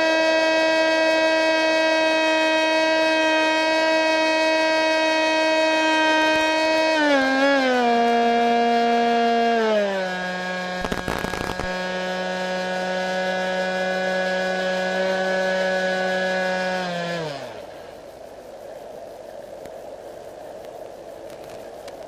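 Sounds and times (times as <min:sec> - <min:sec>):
electric motor and propeller whining: 0:00.0 - 0:18.6
brief noise crackle: 0:10.8 - 0:11.8, 0:20.6 - 0:22.0.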